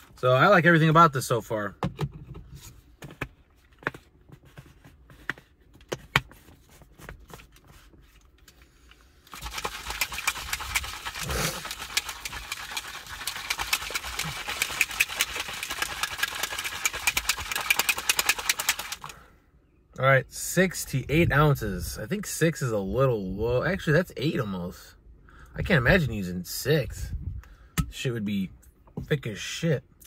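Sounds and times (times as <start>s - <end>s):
shaker bottle rattling: 9.3s - 19.2s.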